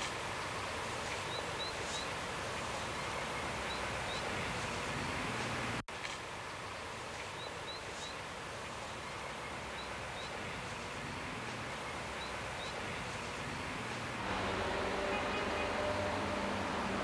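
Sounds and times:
bird chirping: 0:14.7 - 0:16.4.

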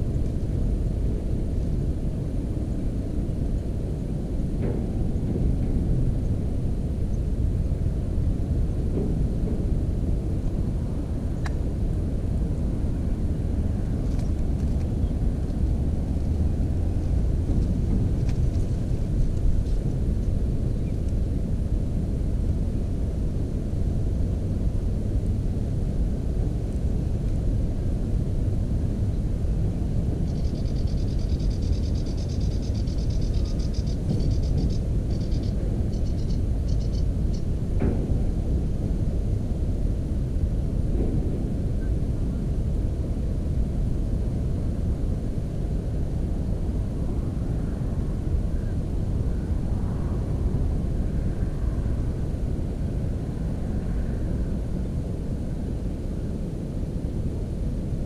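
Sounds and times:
steady low rumble: 0:00.0 - 0:58.0
bird reeling trill: 0:30.3 - 0:37.4.

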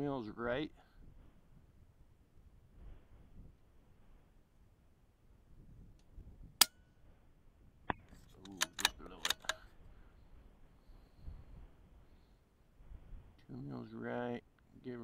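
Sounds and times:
rifle bolt metallic clicks: 0:07.9 - 0:09.7.

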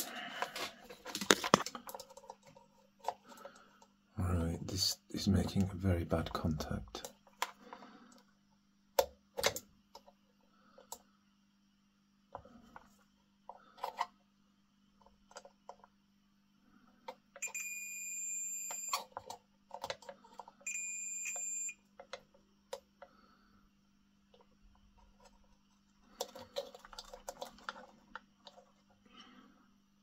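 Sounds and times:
multimeter continuity beep: 0:17.4 - 0:19.0, 0:20.6 - 0:21.8.

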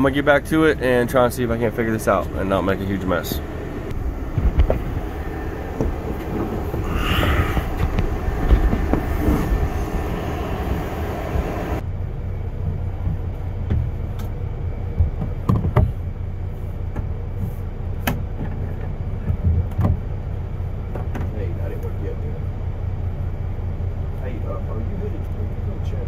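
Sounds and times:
coach engine idling: 0:00.0 - 0:13.5
air conditioning running: 0:00.0 - 0:26.0
high hiss: 0:02.4 - 0:11.8.

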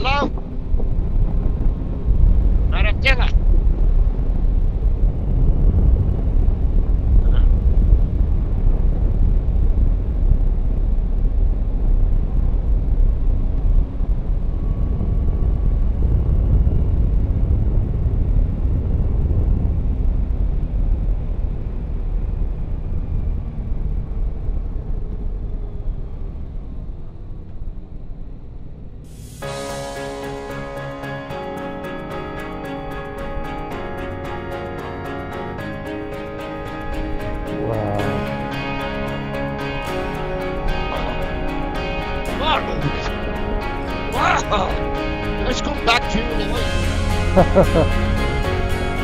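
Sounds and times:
wind and road noise: 0:00.0 - 0:49.0.

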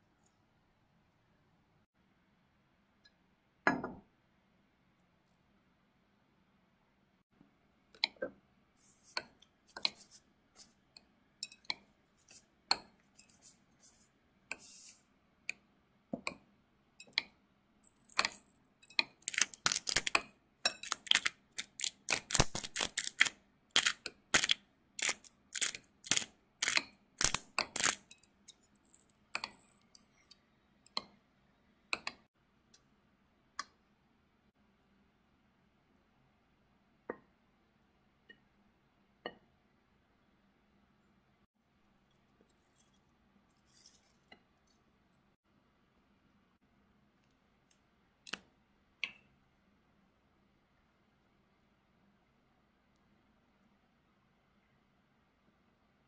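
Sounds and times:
cutlery clinking against glass bowl: 0:11.4 - 0:11.9.

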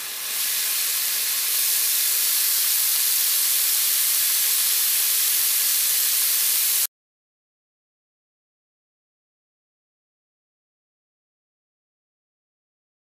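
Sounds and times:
food sizzling in a wok: 0:00.0 - 0:06.9.

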